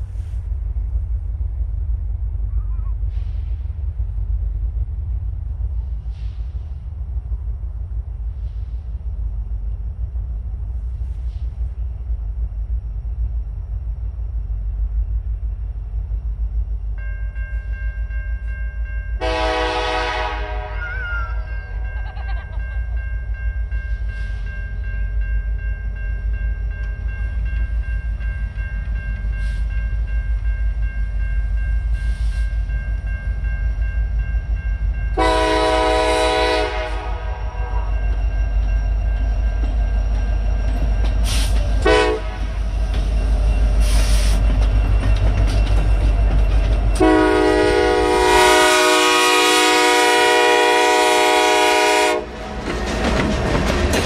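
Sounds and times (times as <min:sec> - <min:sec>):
diesel locomotive engine rumble: 0:00.0 - 0:54.0
train air horn blasts: 0:19.2 - 0:21.4, 0:35.2 - 0:38.0, 0:41.3 - 0:42.6, 0:47.0 - 0:52.4.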